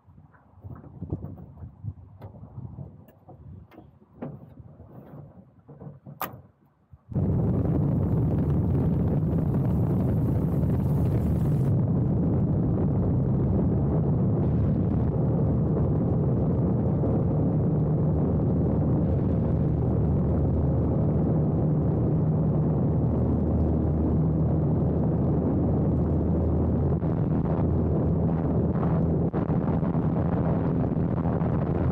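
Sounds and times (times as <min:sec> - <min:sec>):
propeller plane engine droning: 0:07.2 - 0:31.9.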